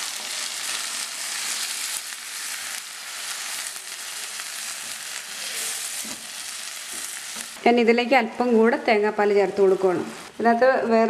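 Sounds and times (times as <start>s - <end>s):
curry sizzling in pan: 0.0s - 7.6s.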